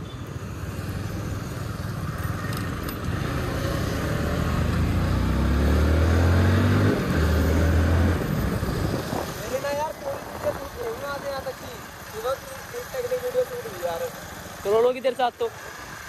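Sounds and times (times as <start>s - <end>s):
road and wind noise: 0.0s - 16.0s
motorcycle engine accelerating: 1.6s - 11.4s.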